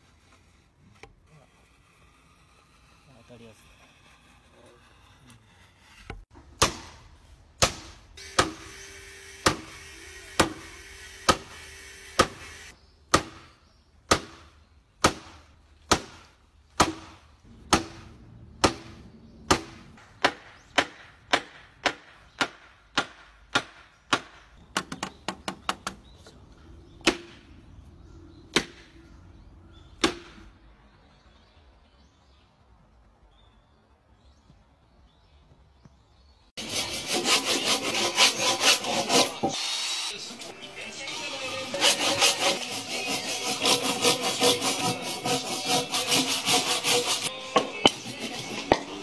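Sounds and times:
hammer striking wood: 0:06.3 - 0:07.0, 0:07.6 - 0:08.6, 0:09.4 - 0:09.7, 0:10.4 - 0:10.7, 0:11.3 - 0:11.6, 0:12.2 - 0:12.4, 0:14.1 - 0:16.2, 0:16.8 - 0:26.0, 0:27.0 - 0:27.4, 0:30.0 - 0:30.5.

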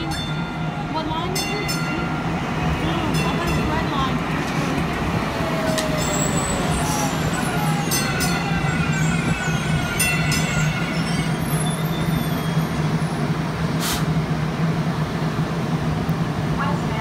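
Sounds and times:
light rail train rolling: 0:00.0 - 0:17.0
short hiss: 0:13.8 - 0:14.1.

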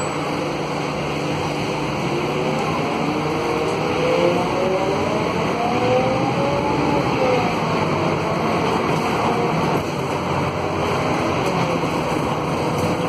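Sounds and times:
bus diesel engine running: 0:00.0 - 0:13.0
road noise: 0:00.0 - 0:13.0.

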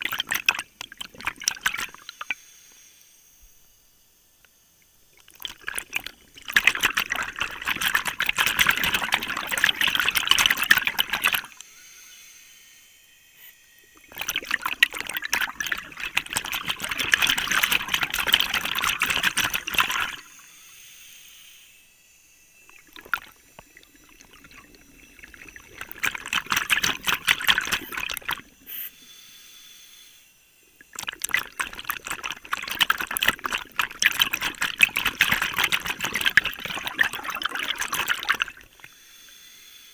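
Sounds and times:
bubbles rushing up: 0:00.0 - 0:02.3, 0:05.2 - 0:11.6, 0:14.0 - 0:20.4, 0:22.7 - 0:28.7, 0:30.8 - 0:39.0.

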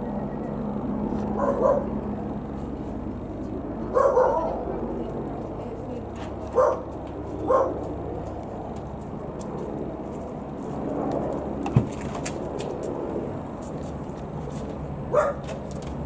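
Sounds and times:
helicopter flying past: 0:00.0 - 0:16.0
dog barking: 0:01.4 - 0:01.9, 0:03.9 - 0:04.6, 0:06.5 - 0:06.9, 0:07.5 - 0:07.8, 0:15.1 - 0:15.4.

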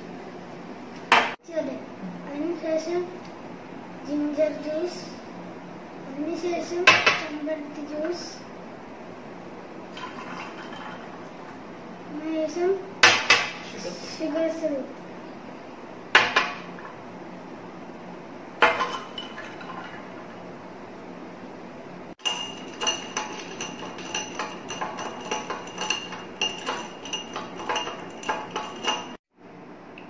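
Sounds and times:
glass clinking against glass: 0:22.2 - 0:29.2
spoon stirring in a glass: 0:22.2 - 0:29.2.

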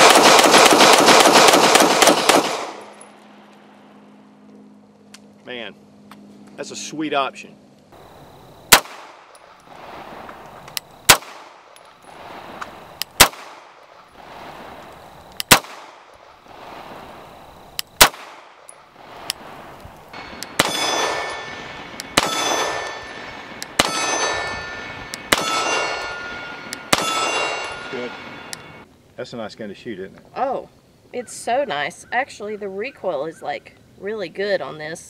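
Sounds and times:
pistol shots: 0:00.0 - 0:03.0, 0:08.7 - 0:10.3, 0:11.0 - 0:14.5, 0:15.4 - 0:16.2, 0:18.0 - 0:19.5, 0:20.2 - 0:24.6, 0:25.2 - 0:27.8
metallic ringing clang: 0:20.2 - 0:28.8.

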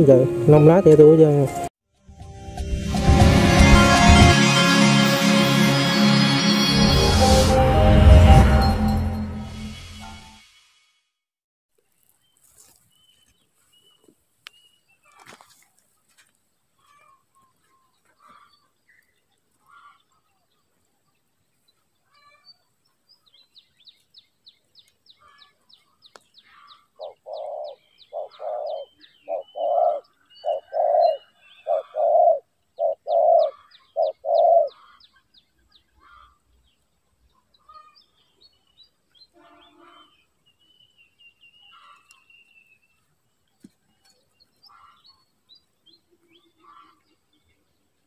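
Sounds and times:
dove cooing: 0:27.0 - 0:34.8.

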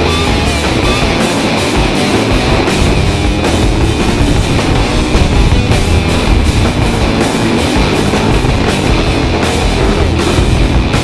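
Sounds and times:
loud rock music: 0:00.0 - 0:11.0.

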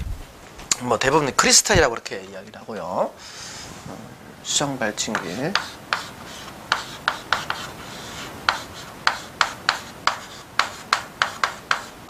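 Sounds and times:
chalk tapping and scratching on board: 0:05.1 - 0:12.0.

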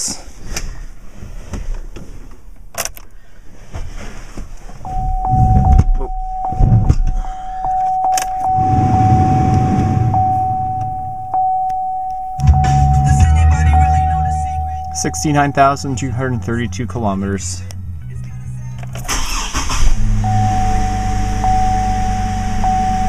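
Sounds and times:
car engine cranking and starting: 0:00.4 - 0:11.8, 0:12.4 - 0:23.0
car warning chime dinging: 0:04.8 - 0:18.0, 0:19.0 - 0:23.0.

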